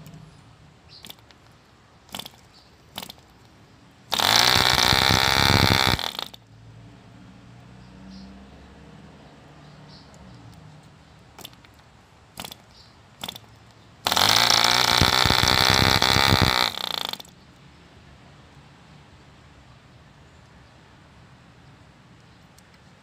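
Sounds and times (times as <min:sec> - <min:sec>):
model diesel engine running fast: 0:14.1 - 0:17.3.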